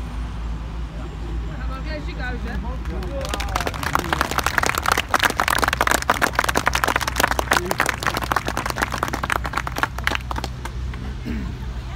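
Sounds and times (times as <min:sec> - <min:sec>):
crowd applauding: 0:02.8 - 0:11.2.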